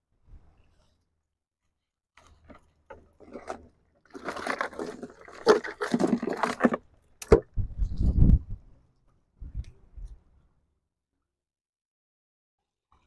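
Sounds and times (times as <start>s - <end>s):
rough scraping: 2.2s - 6.9s.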